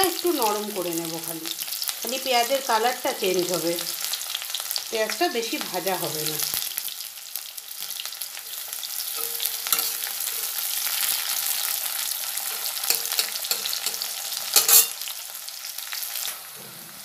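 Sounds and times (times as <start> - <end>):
onions sizzling in oil: 0.0 - 17.0
spatula scraping metal pan: 9.1 - 11.4, 12.4 - 15.1.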